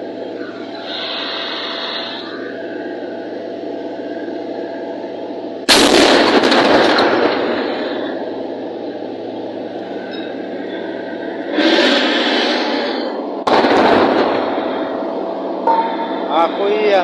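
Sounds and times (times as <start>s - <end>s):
heavy gunfire blast with echo: 5.7s - 8.3s, 13.4s - 15.0s.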